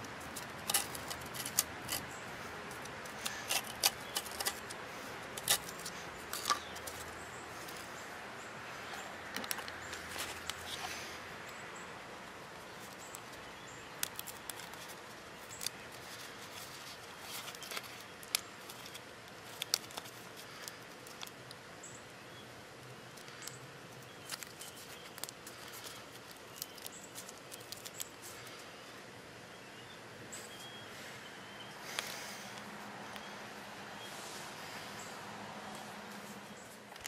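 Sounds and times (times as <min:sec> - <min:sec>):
adhesive film crinkling: 0:00.0 - 0:08.0, 0:08.7 - 0:11.6, 0:12.2 - 0:28.9, 0:35.7 - 0:37.0
steady background hiss: 0:00.0 - 0:37.0.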